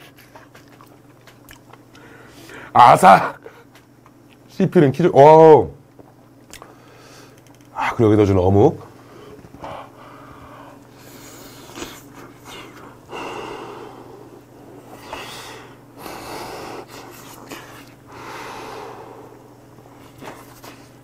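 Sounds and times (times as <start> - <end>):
faint chewing: 0.0 - 2.1
man huffing breaths: 2.0 - 2.7, 9.0 - 21.0.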